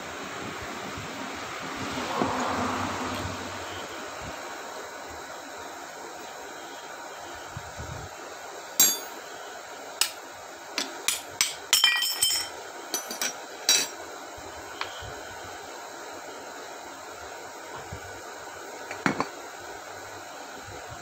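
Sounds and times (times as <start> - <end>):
metallic clinks of tools and parts: 8.8 - 9.2, 10.8 - 13.9.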